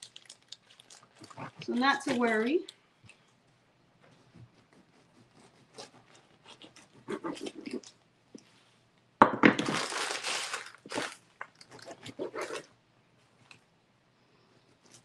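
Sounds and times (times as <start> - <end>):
plastic bag crinkling: 0.0 - 2.7, 9.6 - 12.7
knife sawing through crusty bread: 4.6 - 7.6.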